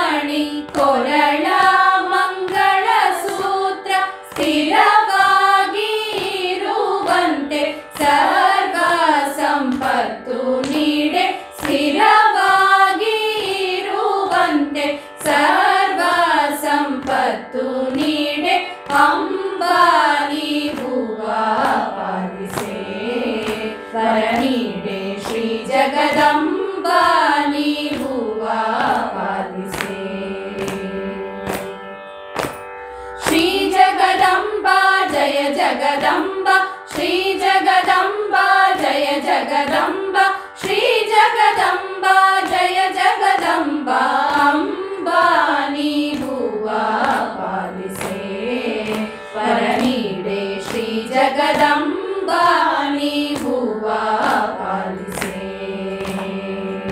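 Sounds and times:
women singing in unison: 0.0 - 31.8, 33.2 - 56.9
steady drone: 17.8 - 31.9.

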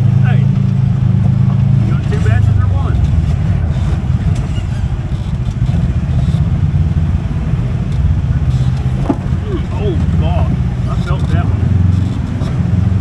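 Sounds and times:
engine low pulsing drone: 0.0 - 13.0
faint rattles: 7.8 - 12.6.

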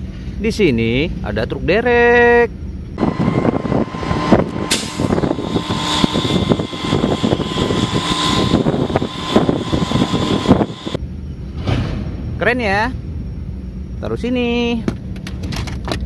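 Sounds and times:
thin steady whine: 2.8 - 11.0
diesel engine running: 3.0 - 11.0.

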